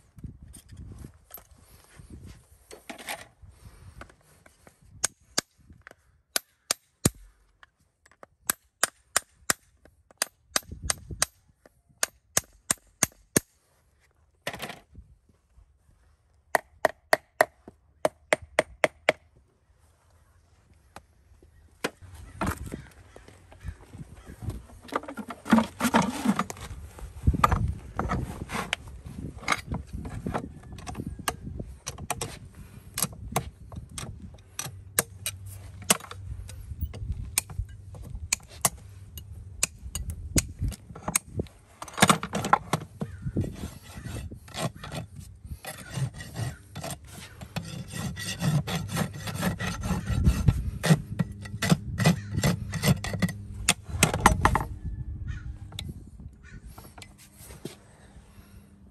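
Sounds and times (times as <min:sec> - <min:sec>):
rasp scraping hoof: 0:24.2 - 0:31.2, 0:41.0 - 0:54.8.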